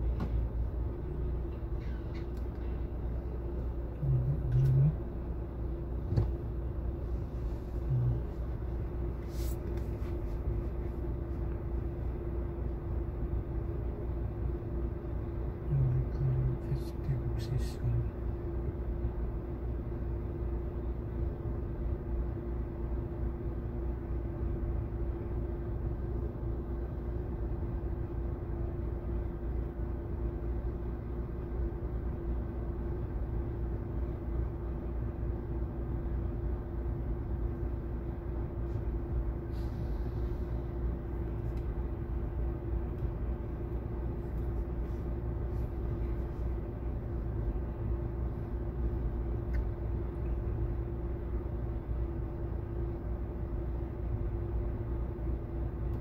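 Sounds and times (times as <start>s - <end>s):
car cabin rumble: 0.0s - 14.6s
constant hum: 0.0s - 56.0s.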